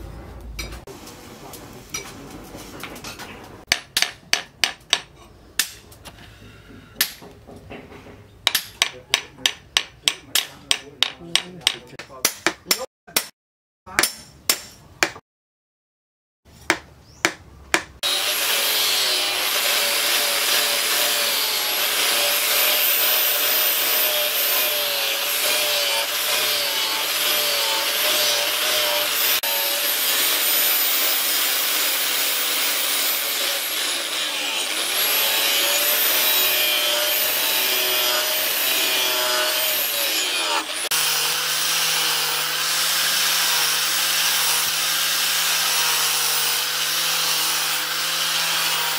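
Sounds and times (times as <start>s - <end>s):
angle grinder grinding steel: 18.0s - 48.9s.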